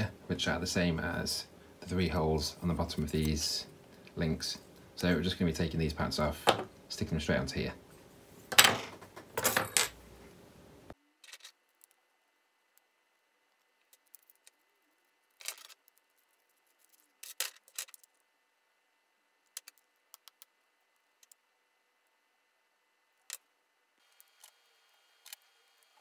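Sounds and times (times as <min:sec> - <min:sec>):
small parts clicking and clinking: 0:11.2 - 0:12.0, 0:13.5 - 0:14.6, 0:15.3 - 0:18.2, 0:19.4 - 0:20.5.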